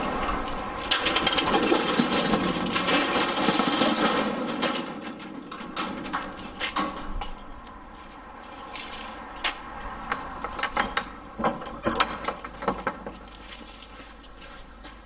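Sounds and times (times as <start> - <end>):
keys jangling: 0.0 - 0.9, 6.3 - 9.2.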